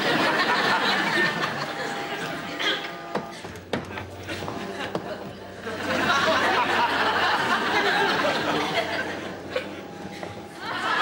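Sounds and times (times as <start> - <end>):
studio audience laughing: 0.0 - 2.5, 5.6 - 11.0.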